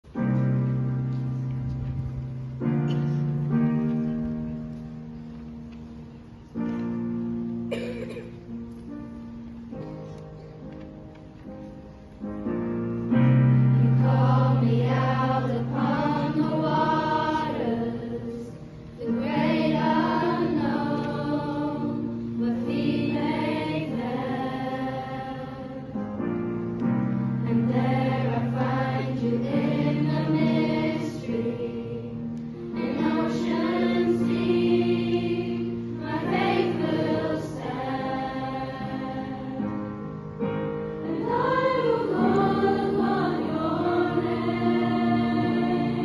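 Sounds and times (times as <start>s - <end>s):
group of voices singing: 13.9s - 25.8s, 27.5s - 39.7s, 41.0s - 46.0s.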